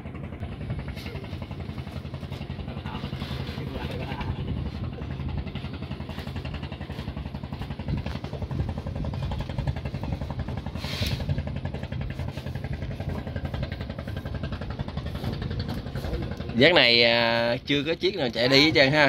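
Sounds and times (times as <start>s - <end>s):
boat diesel engine chugging: 0.0s - 19.0s.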